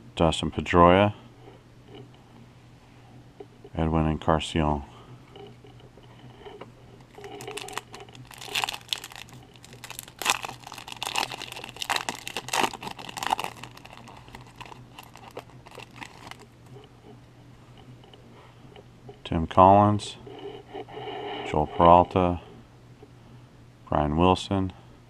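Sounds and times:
foil wrapper tearing and crinkling: 0:07.1 - 0:16.5.

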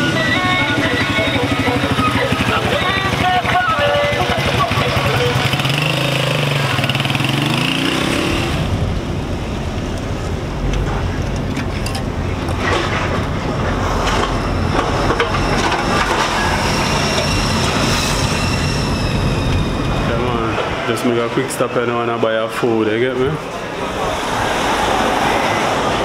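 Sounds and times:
motorcycle engine revving: 0:00.0 - 0:09.7.

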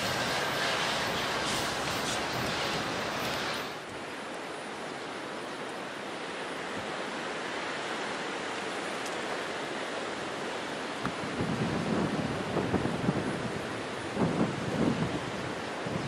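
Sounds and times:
approaching train rushing noise: 0:00.0 - 0:03.9.

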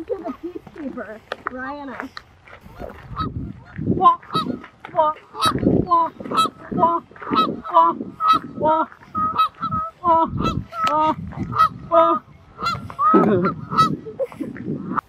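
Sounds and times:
geese honking: 0:02.7 - 0:14.2.

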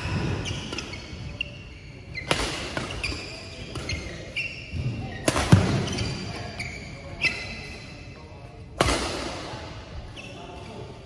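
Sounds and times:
shoes squeaking on floor: 0:00.0 - 0:08.2, 0:10.0 - 0:10.8
rackets hitting shuttlecock: 0:02.2 - 0:04.3, 0:05.1 - 0:06.4, 0:08.7 - 0:09.7.

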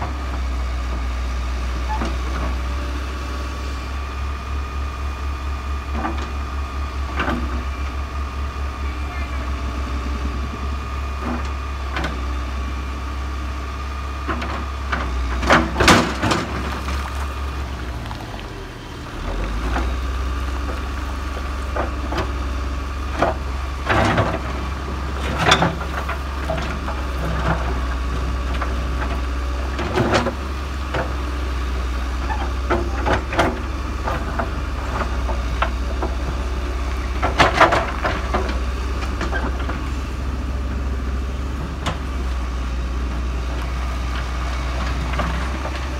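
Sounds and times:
diesel engine drone: 0:00.0 - 0:45.9
stones scraping steel bucket: 0:16.2 - 0:18.6.

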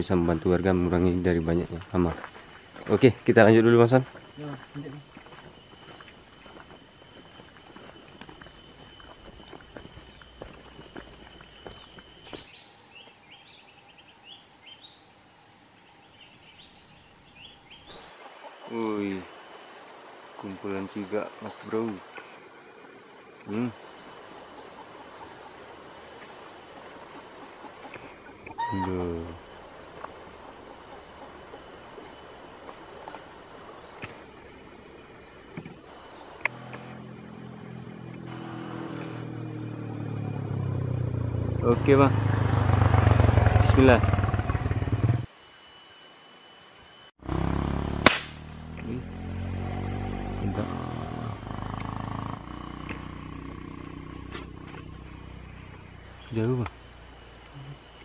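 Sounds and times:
insects shrilling: 0:00.3 - 0:12.6, 0:17.4 - 0:58.0
footsteps crunching through grass: 0:01.5 - 0:12.6
bird chirping: 0:08.5 - 0:15.2, 0:15.8 - 0:19.2, 0:49.9 - 0:56.6
low motor hum: 0:34.2 - 0:45.3, 0:47.2 - 0:58.0.

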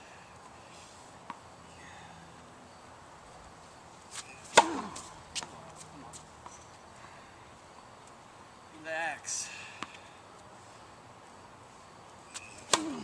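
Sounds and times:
tennis racket striking ball: 0:04.4 - 0:05.5, 0:12.4 - 0:13.0.

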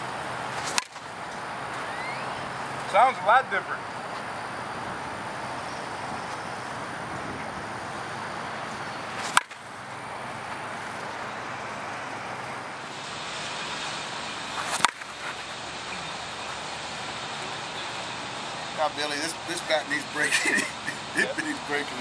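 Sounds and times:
bat hitting a softball: 0:00.6 - 0:01.1, 0:09.1 - 0:09.6, 0:14.6 - 0:15.1.

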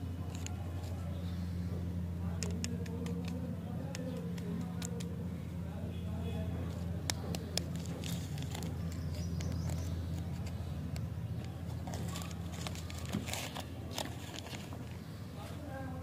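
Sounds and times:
steady low hum: 0:00.0 - 0:16.0
wrapper crinkling and tearing: 0:07.7 - 0:09.1, 0:11.7 - 0:14.8.

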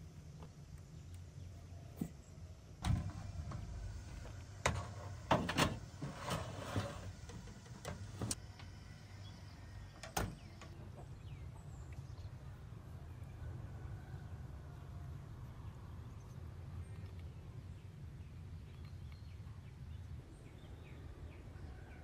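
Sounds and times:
baking tray sliding onto oven rack: 0:04.6 - 0:08.4.

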